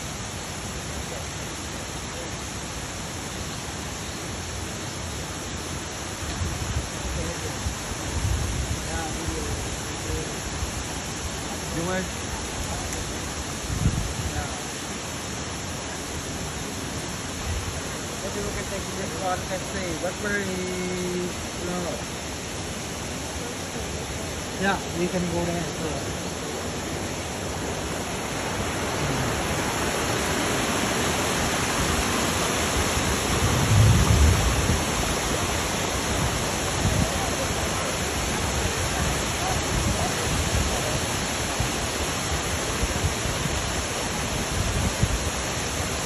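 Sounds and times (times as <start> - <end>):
waterfall roaring: 0.0 - 46.0
faint voices: 15.8 - 31.2.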